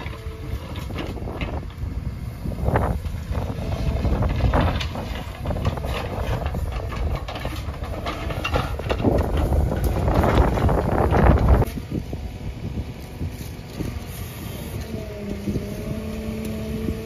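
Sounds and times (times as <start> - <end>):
diesel engine running under load: 0.0 - 17.0
bucket scraping and knocking in dirt: 3.6 - 11.7.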